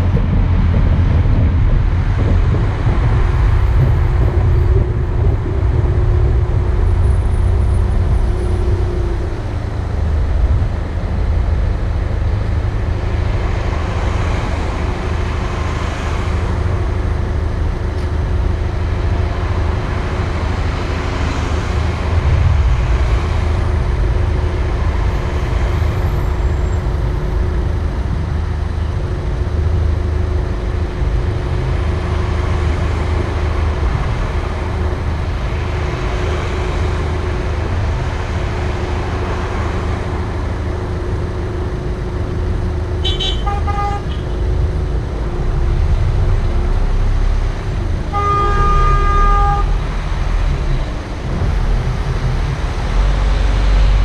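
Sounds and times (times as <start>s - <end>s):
idling traffic rumble: 0.0s - 54.0s
car horn honking: 43.0s - 44.3s, 48.1s - 49.8s.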